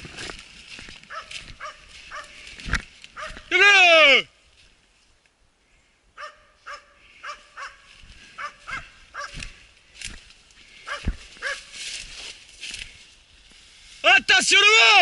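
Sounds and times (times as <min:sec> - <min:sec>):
hunting dogs yelping: 0:01.1 - 0:02.5, 0:03.1 - 0:03.5, 0:06.2 - 0:09.6, 0:10.8 - 0:11.8.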